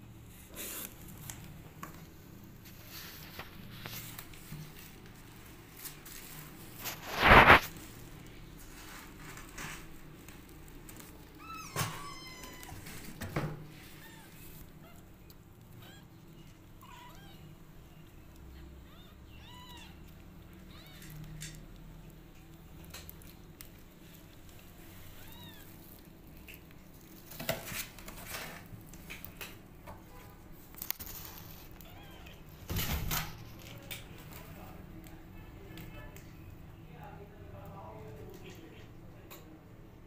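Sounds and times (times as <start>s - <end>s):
loud rustle: 5.7s - 10.2s
kittens mewing: 11.2s - 13.0s, 13.8s - 21.8s, 31.6s - 32.6s.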